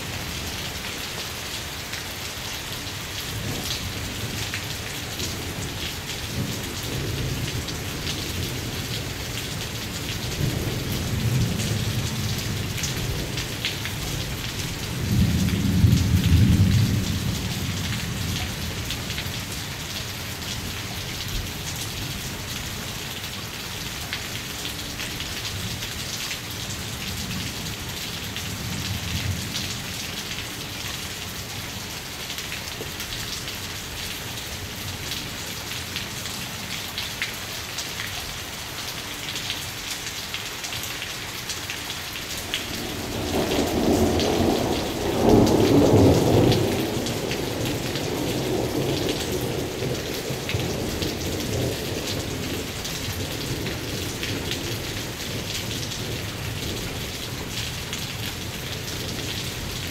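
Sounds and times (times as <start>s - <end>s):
steady rain falling: 0.0s - 59.9s
thunder rumbling: 42.6s - 52.4s.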